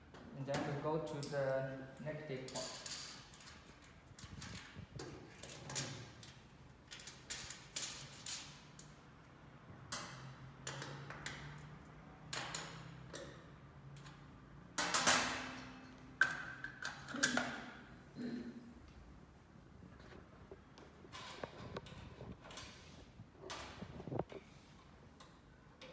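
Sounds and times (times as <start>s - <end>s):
clicks and knocks of metal hardware: 2.4s - 9.0s, 14.8s - 17.7s.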